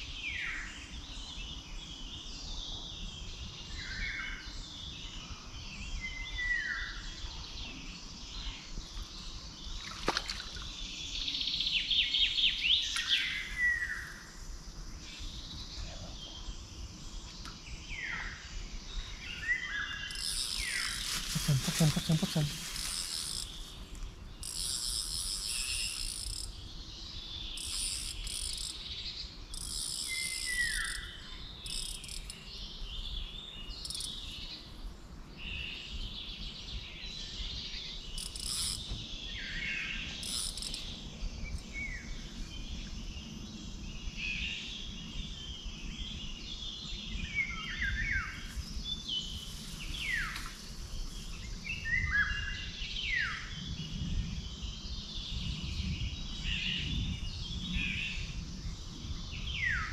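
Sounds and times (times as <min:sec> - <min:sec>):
birds singing: 0:00.0 - 0:59.9
high insect buzzing: 0:20.0 - 0:33.0, 0:33.7 - 0:34.4, 0:38.1 - 0:39.0, 0:40.1 - 0:41.0.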